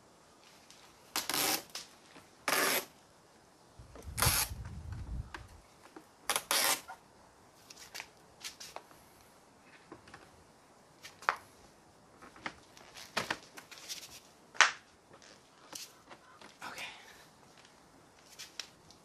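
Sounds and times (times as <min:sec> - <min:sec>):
tape liner peeling off: 0:01.1 - 0:02.9, 0:04.0 - 0:04.6, 0:06.3 - 0:07.0.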